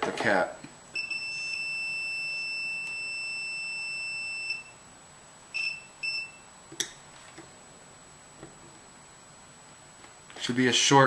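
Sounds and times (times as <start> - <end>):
multimeter beeping: 0.9 - 4.8, 5.5 - 6.5
short beeps: 1.0 - 4.8, 5.5 - 6.5.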